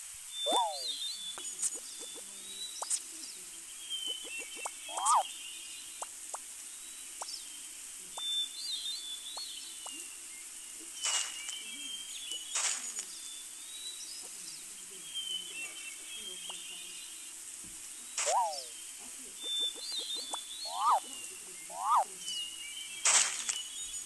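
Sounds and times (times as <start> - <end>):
steady outdoor hiss: 0.0 - 24.0
birds chirping: 0.3 - 24.0
brief swishes: 18.2 - 18.7.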